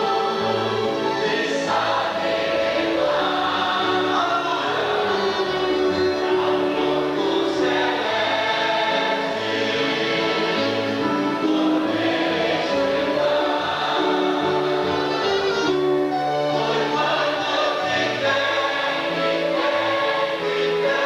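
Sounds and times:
congregation singing a hymn: 0:00.0 - 0:21.0
keyboard: 0:00.0 - 0:21.0
saxophone: 0:14.1 - 0:17.2.

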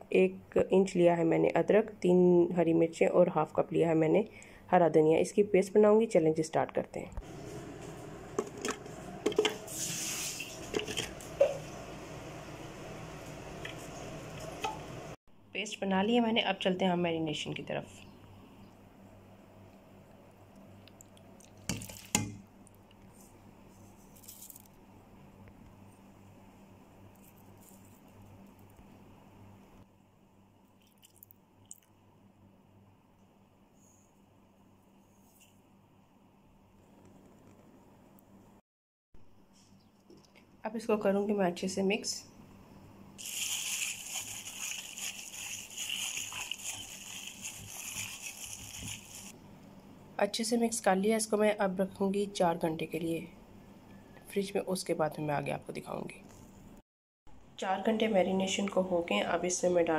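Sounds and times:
chili flakes rustling: 0:27.1 - 0:28.7, 0:43.2 - 0:49.4
wet squishing and sloshing: 0:43.2 - 0:49.4.

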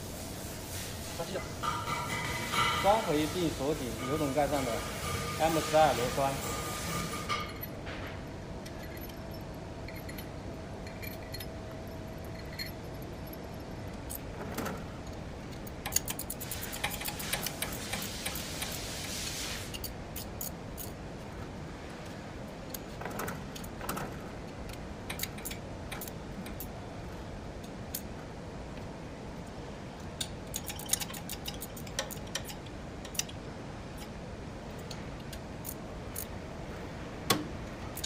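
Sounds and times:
metal tools clinking and rattling: 0:08.6 - 0:18.1, 0:30.4 - 0:33.3.

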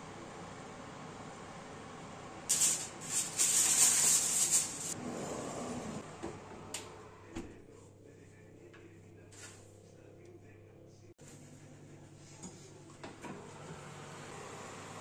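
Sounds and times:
rattling rustling noise: 0:02.5 - 0:05.0.

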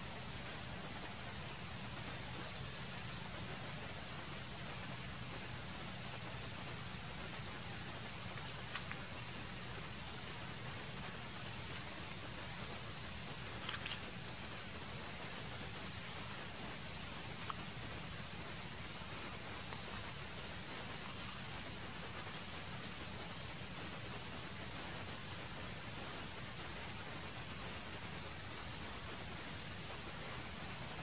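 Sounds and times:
insects droning: 0:00.0 - 0:31.0.

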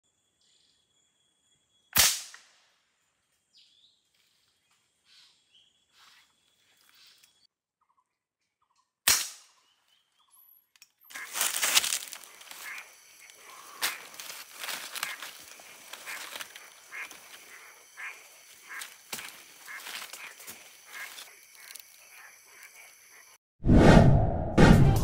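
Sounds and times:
rustling leaves and branches: 0:11.1 - 0:22.9
faint bird calls: 0:12.2 - 0:23.3.

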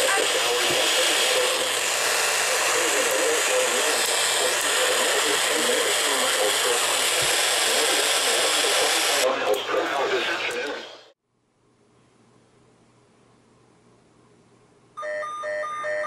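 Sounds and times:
radio static hiss: 0:00.0 - 0:11.2.

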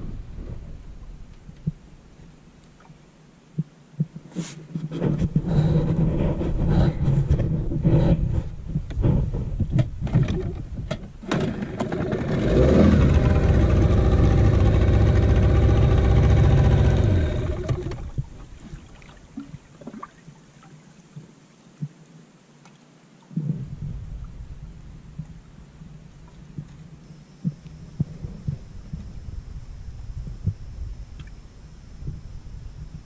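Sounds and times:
knocks and rumbling: 0:04.8 - 0:18.4
outboard motor humming: 0:11.2 - 0:18.8.

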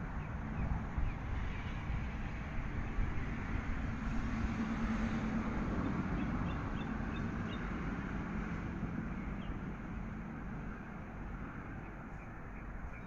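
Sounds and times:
road traffic rumble: 0:00.0 - 0:13.0
bird chirping: 0:11.8 - 0:13.0.

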